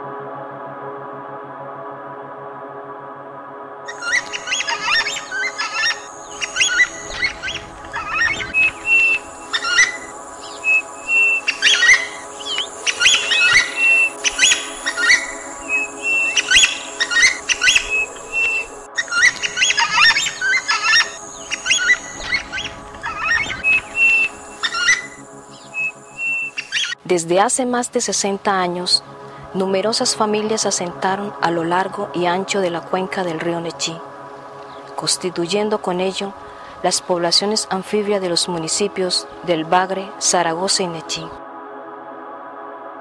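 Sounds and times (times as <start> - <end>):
soft music: 0.0 - 43.0
birds chirping and whistling: 3.9 - 27.0.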